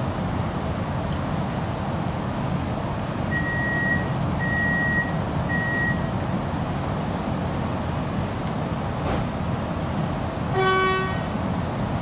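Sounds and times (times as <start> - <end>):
low hum of train: 0.0 - 12.0
electronic warning beeps: 3.3 - 6.1.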